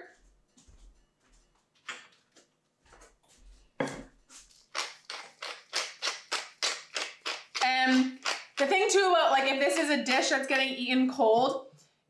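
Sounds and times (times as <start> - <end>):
pepper mill grinding: 4.5 - 9.0.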